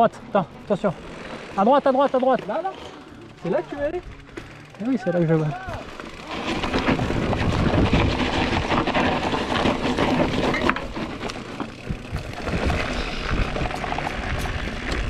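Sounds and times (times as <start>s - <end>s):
bike rattling: 0.0s - 15.0s
tyres crunching over dirt and stones: 0.5s - 15.0s
steady rushing noise: 3.4s - 15.0s.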